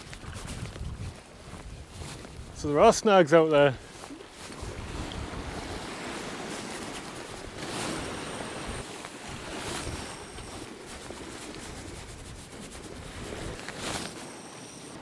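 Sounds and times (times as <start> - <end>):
wind rumbling on microphone: 0.0 - 3.0, 3.8 - 15.0
waves breaking over rocks: 3.1 - 15.0.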